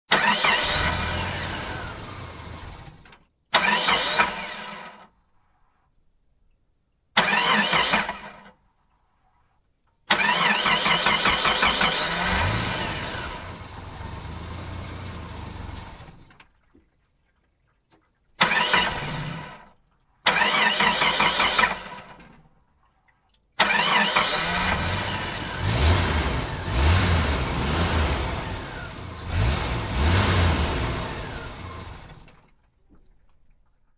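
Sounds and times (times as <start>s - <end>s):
car engine starting and revving: 0.1s - 5.0s, 10.1s - 16.3s, 18.4s - 19.6s, 20.3s - 22.1s, 23.6s - 32.4s.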